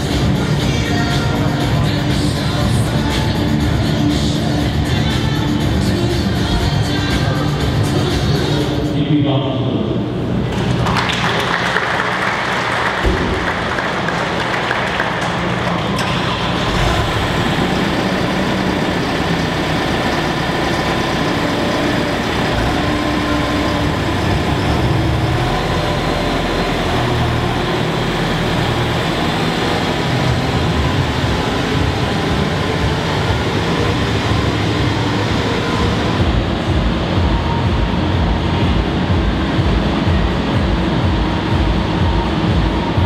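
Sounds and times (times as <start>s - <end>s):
diesel engine rumbling: 0.0s - 43.0s
dense rushing noise: 12.7s - 43.0s.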